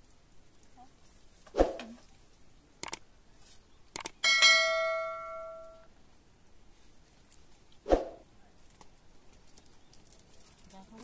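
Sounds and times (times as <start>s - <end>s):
light clicks: 2.8s - 3.0s, 3.9s - 4.2s
metal object ringing: 4.2s - 5.9s.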